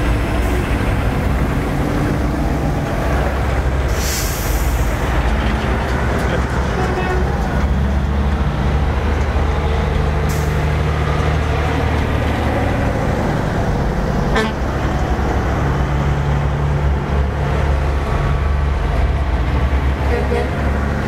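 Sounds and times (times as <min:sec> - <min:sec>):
diesel trucks passing: 0:00.0 - 0:21.0
air brake hiss: 0:03.9 - 0:05.0.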